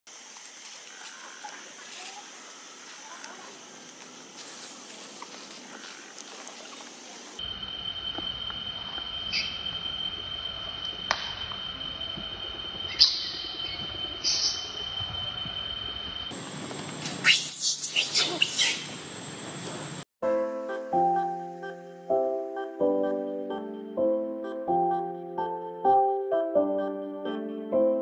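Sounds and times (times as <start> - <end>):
steady high-pitched whine: 0.1 - 20.1
monkeys squeaking: 17.2 - 19.0.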